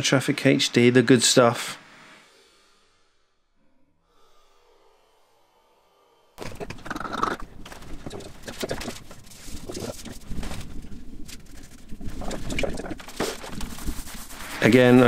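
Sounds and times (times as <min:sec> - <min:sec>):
rustling: 0:06.4 - 0:15.0.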